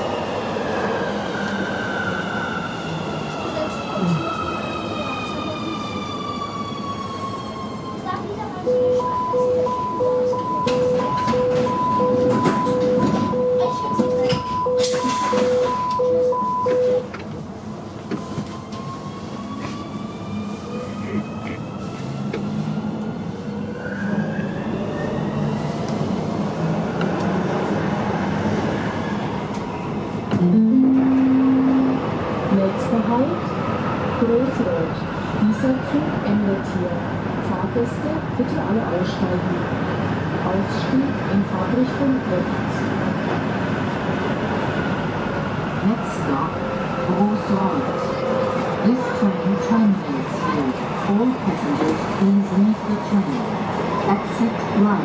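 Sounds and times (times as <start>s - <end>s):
metro train rolling: 0.0s - 55.0s
faint passenger voices: 3.2s - 18.6s, 19.2s - 23.6s, 30.3s - 43.4s, 45.7s - 55.0s.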